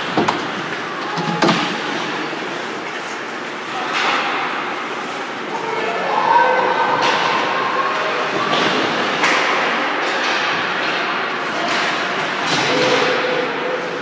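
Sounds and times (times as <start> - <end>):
hockey sticks clacking on puck: 3.7 - 5.0, 6.9 - 7.6, 8.3 - 13.6
people shouting: 5.5 - 8.9.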